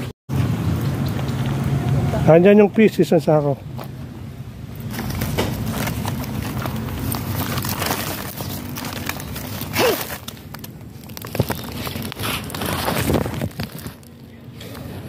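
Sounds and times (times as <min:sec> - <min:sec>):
plastic sack crinkling: 0:04.8 - 0:15.0.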